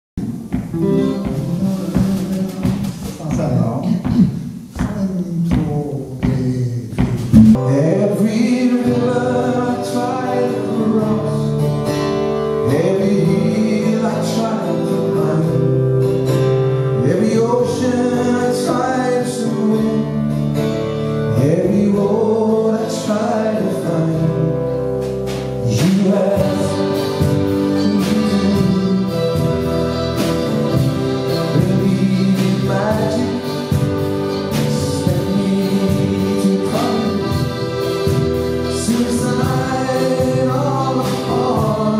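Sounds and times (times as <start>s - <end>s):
drum kit: 0.2s - 18.8s, 24.2s - 41.9s
acoustic guitar: 0.2s - 41.9s
electric bass: 7.0s - 41.9s
accordion: 24.5s - 41.9s.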